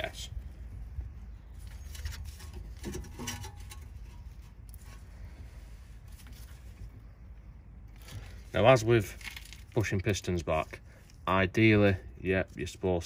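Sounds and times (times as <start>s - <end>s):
steady low rumble: 0.0s - 9.7s.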